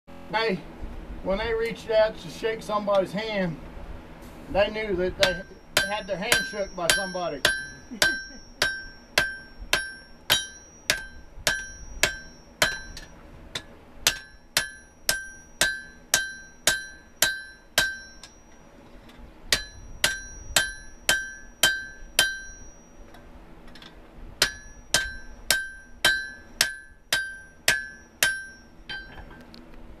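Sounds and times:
hammer ringing on anvil: 5.2s - 18.7s, 19.5s - 23.2s, 24.4s - 29.4s.

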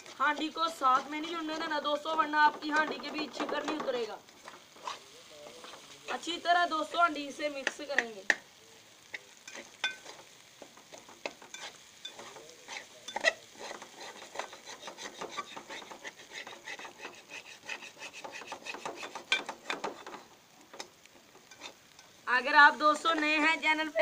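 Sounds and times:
metal spatula scraping pan: 0.0s - 7.1s, 9.1s - 22.2s
spatula knocking against pan: 0.3s - 4.0s.

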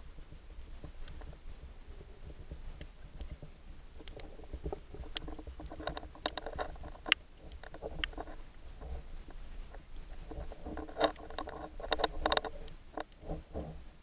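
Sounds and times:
underwater rumble of moving water: 0.0s - 14.0s
sharp clicks and crackles: 2.5s - 13.7s.

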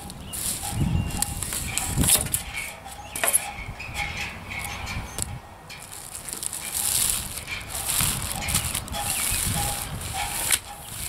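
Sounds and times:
packaging rustling: 5.8s - 11.0s.

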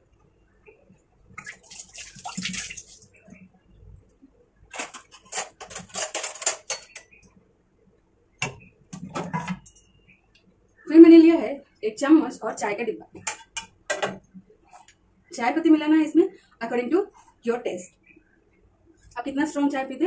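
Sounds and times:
metal utensils and dishes clattering: 4.7s - 7.2s, 8.4s - 10.0s.

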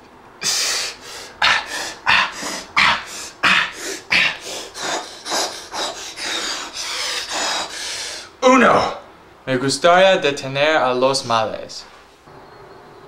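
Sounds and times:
man huffing breaths: 0.4s - 8.4s.

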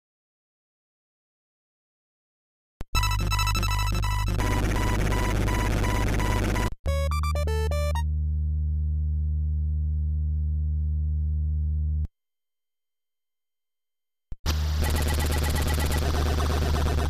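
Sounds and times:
high electronic pips: 2.9s - 8.1s, 14.8s - 17.0s
low buzzing drone: 3.1s - 12.1s.

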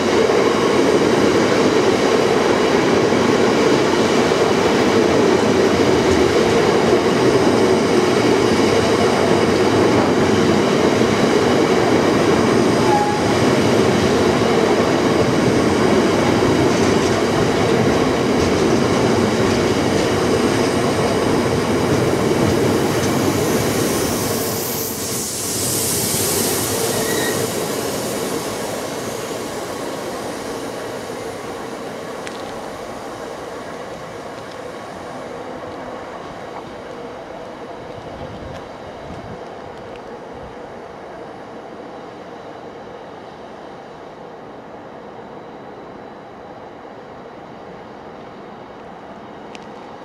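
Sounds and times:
freight train wheels rumbling: 0.0s - 50.0s.

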